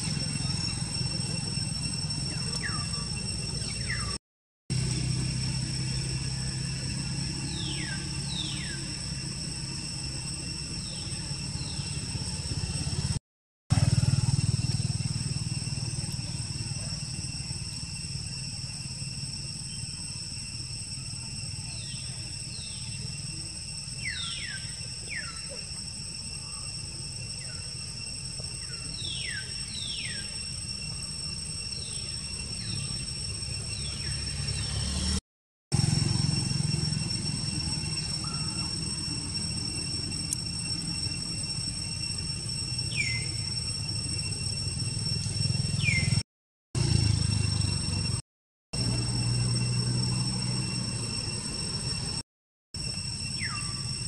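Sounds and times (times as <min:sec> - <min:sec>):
steady high-pitched whine: 0:00.0 - 0:48.2, 0:48.8 - 0:52.2, 0:52.8 - 0:54.0.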